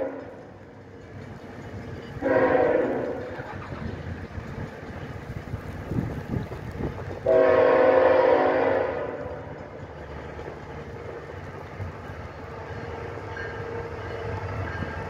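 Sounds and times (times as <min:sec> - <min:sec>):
locomotive air horn blasts: 0:00.0 - 0:00.4, 0:02.2 - 0:03.3, 0:07.2 - 0:09.5
train rumbling: 0:00.0 - 0:15.0.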